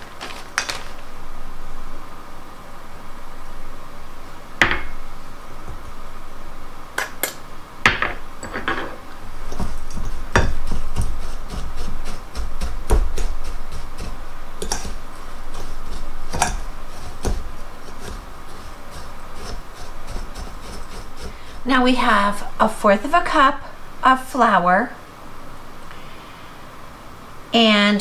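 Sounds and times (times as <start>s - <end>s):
crumbs scraping and rustling: 0.0s - 1.3s, 8.9s - 23.4s.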